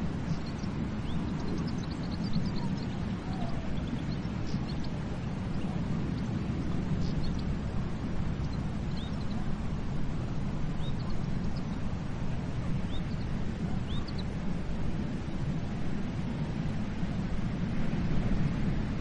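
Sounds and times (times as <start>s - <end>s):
small birds chirping: 0.0s - 14.5s
sea rushing: 0.0s - 19.0s.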